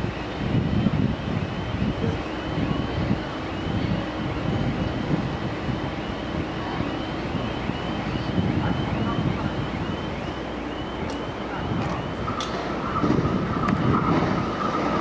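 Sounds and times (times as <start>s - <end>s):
wind on microphone: 0.0s - 10.2s, 11.0s - 15.0s
train rumbling on track: 0.0s - 15.0s.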